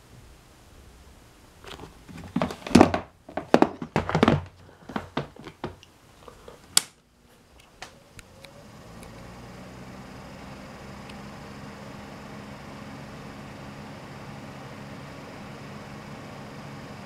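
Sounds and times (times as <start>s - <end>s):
fan running with whoosh and hum: 0.0s - 17.0s
plastic fan knocks and rattles: 2.1s - 5.8s.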